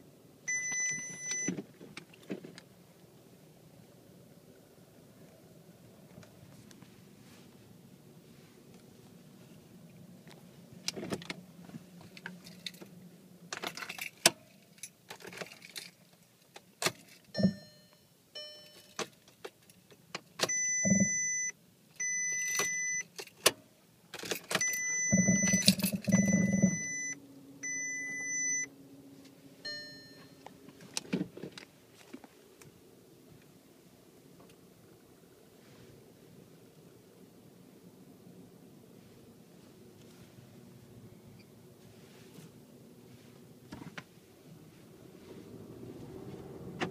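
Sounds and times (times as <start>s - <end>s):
electronic warning chimes: 0.5s - 1.5s, 20.5s - 23.0s, 24.6s - 28.7s, 29.7s - 30.4s
car keys jangling: 12.0s - 17.7s, 22.0s - 23.5s, 24.1s - 27.1s
car engine cranking and starting: 19.0s - 28.9s, 45.0s - 46.9s.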